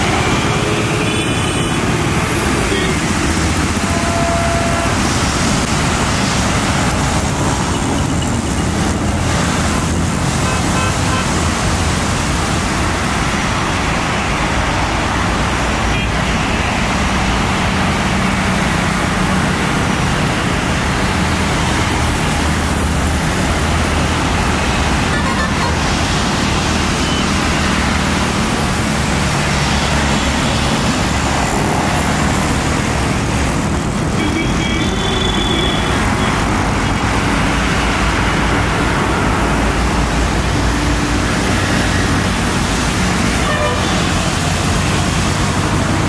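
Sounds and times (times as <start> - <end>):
jet engines roaring: 0.0 - 15.9.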